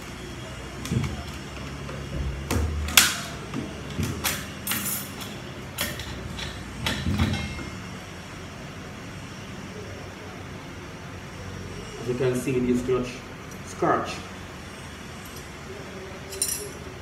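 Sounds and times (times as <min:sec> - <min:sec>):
metal parts clinking and knocking: 0:04.2 - 0:07.6, 0:16.3 - 0:16.8.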